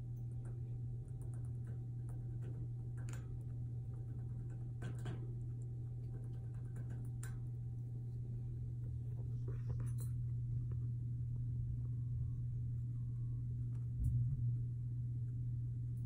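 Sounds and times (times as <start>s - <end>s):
low hum: 0.0s - 16.0s
wire cage gate clicking and rattling: 0.3s - 7.6s.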